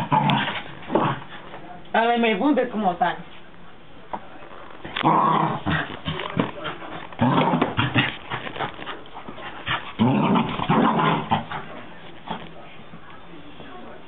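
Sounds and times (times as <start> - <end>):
small dog growling and snarling: 0.0 - 1.4, 4.9 - 9.0, 9.6 - 12.4.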